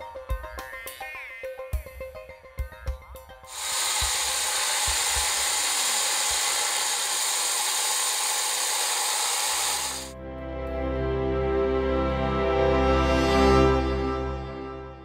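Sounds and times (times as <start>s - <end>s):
angle grinder cutting stone: 3.5s - 10.1s.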